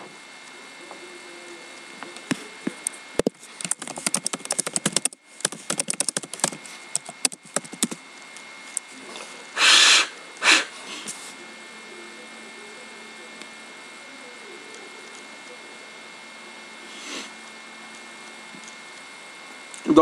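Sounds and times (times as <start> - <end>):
laptop keyboard typing: 3.2 - 8.0
loud breath sounds: 9.6 - 11.2, 16.8 - 17.4.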